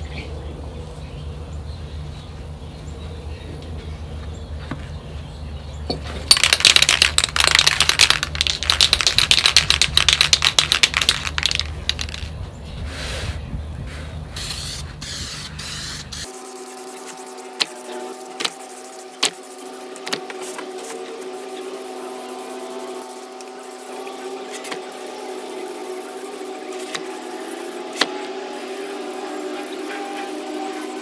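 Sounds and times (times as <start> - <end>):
steady low hum: 0.0 - 31.0
aerosol spray paint hissing: 6.4 - 12.3, 14.4 - 31.0.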